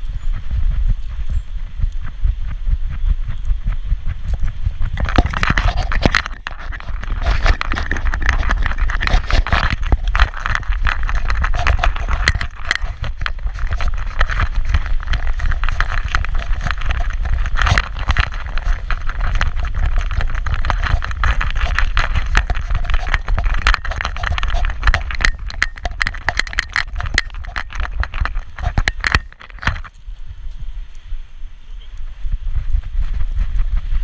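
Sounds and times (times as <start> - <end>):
wind rumble on microphone: 0.0 - 34.0
dog harness and leash rattling: 4.3 - 30.0.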